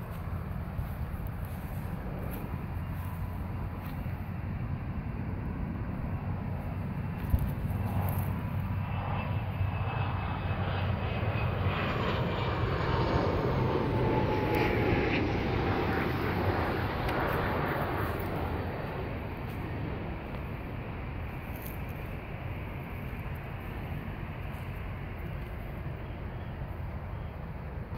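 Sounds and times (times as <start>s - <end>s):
airplane engine rumble: 0.0s - 27.9s.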